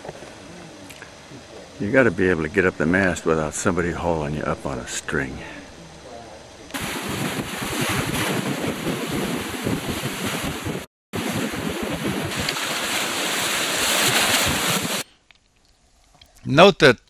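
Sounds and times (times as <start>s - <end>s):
wind buffeting microphone: 6.4s - 15.0s
water rushing past hull: 6.7s - 15.0s.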